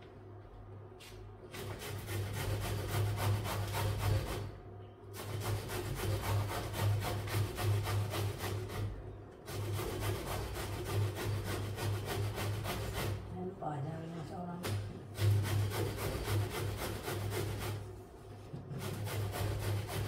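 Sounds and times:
vegetable grating on box grater: 0:01.6 - 0:04.5, 0:05.2 - 0:13.3, 0:14.6 - 0:18.0, 0:18.6 - 0:20.0.

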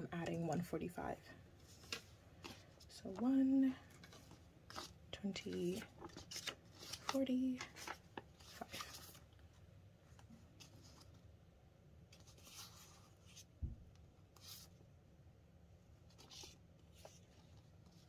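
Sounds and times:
banknotes crinkling: 0:01.6 - 0:09.5.

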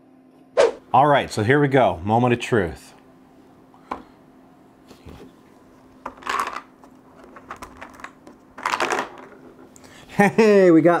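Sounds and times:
candy balls rattling in dispenser: 0:06.2 - 0:06.7, 0:07.4 - 0:09.4.

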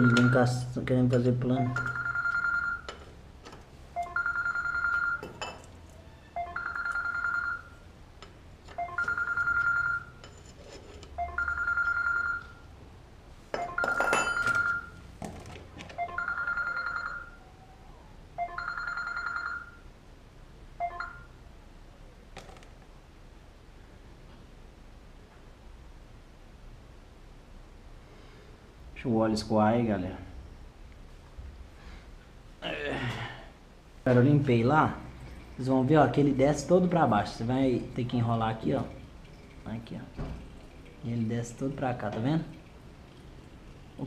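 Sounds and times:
phone ringing: 0:00.0 - 0:00.7, 0:01.6 - 0:03.2, 0:03.9 - 0:07.9, 0:08.7 - 0:10.3, 0:11.1 - 0:12.7, 0:13.6 - 0:15.1, 0:15.9 - 0:17.4, 0:18.4 - 0:19.9, 0:20.8 - 0:21.4.

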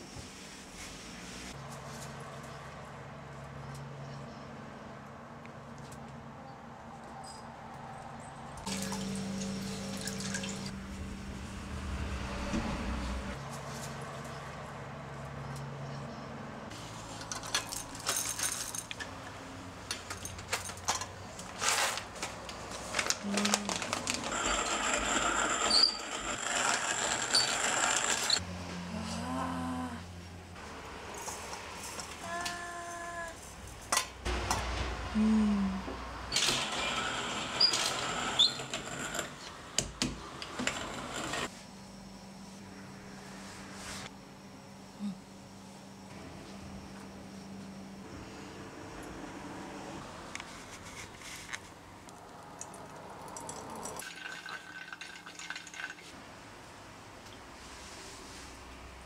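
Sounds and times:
low falling tone: 0:08.8 - 0:13.4
paper bag crinkling: 0:21.4 - 0:25.3
hand coffee mill grinding beans: 0:21.4 - 0:28.4, 0:36.3 - 0:39.5.

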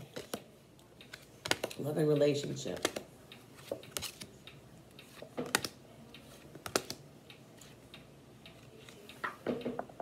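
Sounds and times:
cards tapping on wooden table: 0:05.3 - 0:05.8.

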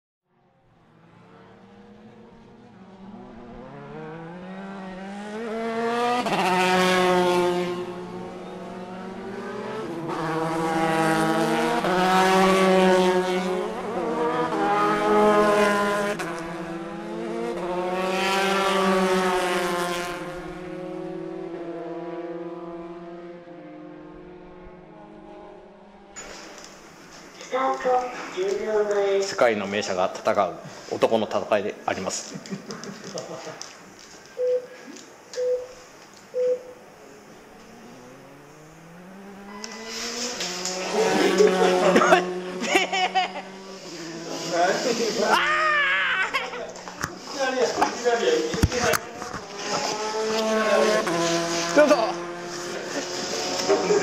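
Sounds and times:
racing car engines revving: 0:00.3 - 0:35.5, 0:36.2 - 0:54.0.

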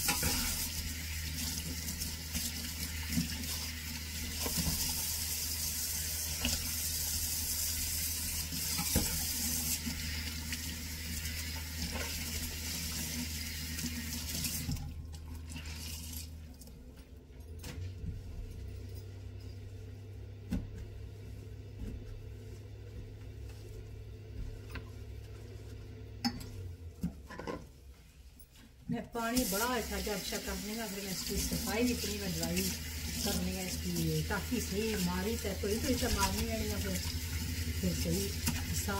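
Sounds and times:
cloth wiping steel sink: 0:19.6 - 0:26.0, 0:29.3 - 0:38.9.

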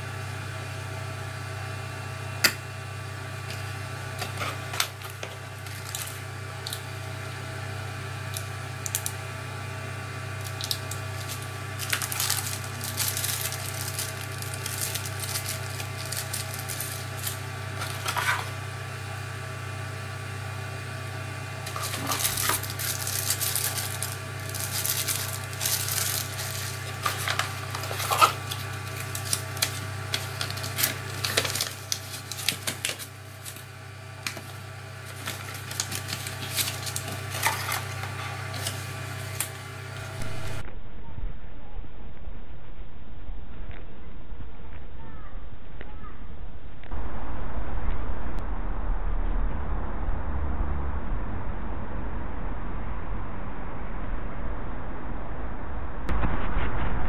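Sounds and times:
steady low hum: 0:00.0 - 0:57.0
plastic bag crinkling: 0:04.2 - 0:06.9, 0:08.3 - 0:09.2, 0:10.4 - 0:18.6, 0:21.6 - 0:39.6.

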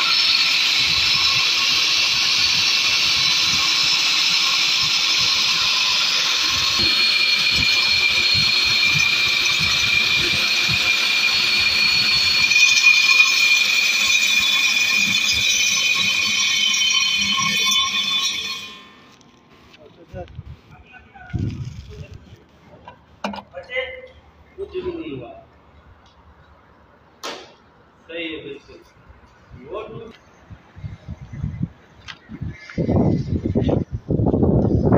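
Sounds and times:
core drill motor whine: 0:00.0 - 0:19.8
drill bit grinding concrete: 0:00.0 - 0:19.8.

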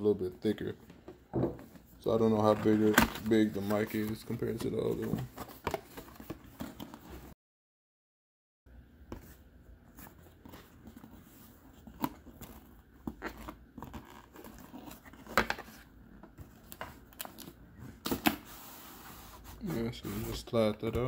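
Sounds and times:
cardboard scraping and rustling: 0:17.9 - 0:20.7.

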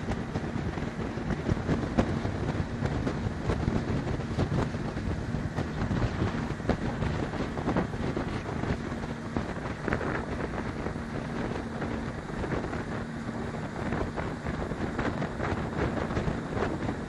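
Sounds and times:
motorboat engine humming: 0:00.0 - 0:17.0
wind buffeting microphone: 0:00.0 - 0:17.0.

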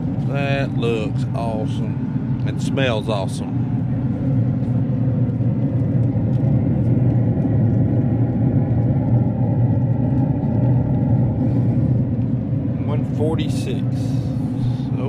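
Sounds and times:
low mechanical rumble: 0:00.0 - 0:15.0.

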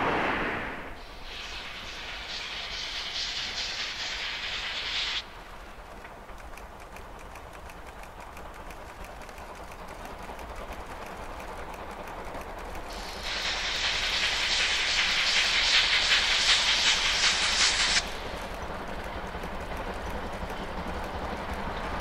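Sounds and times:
steam hissing: 0:00.0 - 0:05.6, 0:12.8 - 0:20.3
steam locomotive exhaust beats: 0:00.9 - 0:22.0.

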